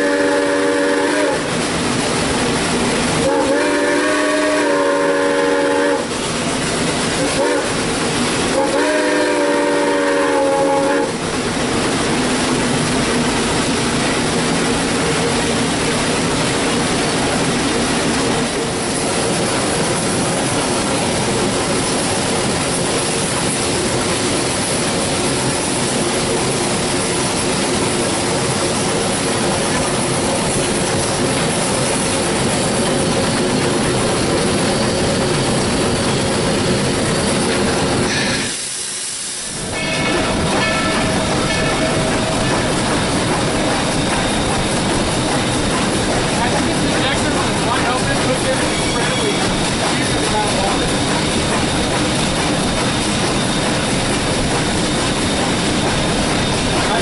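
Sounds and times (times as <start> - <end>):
steam locomotive whistle: 0.0 - 1.6, 3.2 - 6.2, 7.2 - 7.8, 8.5 - 11.2
locomotive machinery din: 0.0 - 38.6, 39.4 - 57.0.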